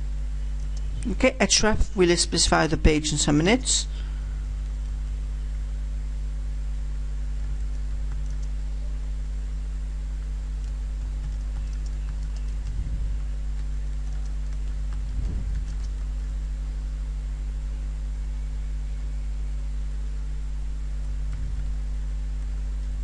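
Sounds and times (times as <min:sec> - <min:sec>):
steady low hum: 0:00.0 - 0:23.0
soft low thumps: 0:10.0 - 0:18.2, 0:20.1 - 0:23.0.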